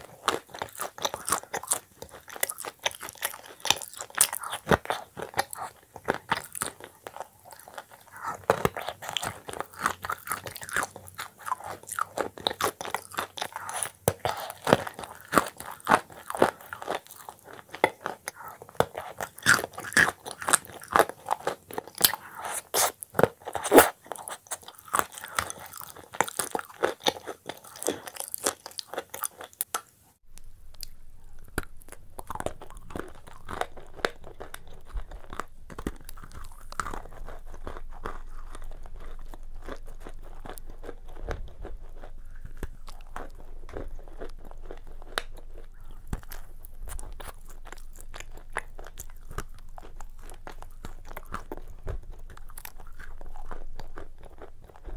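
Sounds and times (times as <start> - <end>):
crunching and chewing cookies: 0.0 - 54.9
low hum: 30.2 - 54.9.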